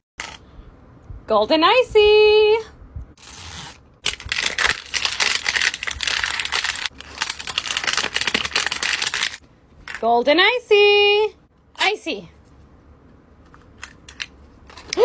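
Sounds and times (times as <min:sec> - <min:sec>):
plastic wrapper crinkling and tearing: 0:03.2 - 0:09.4.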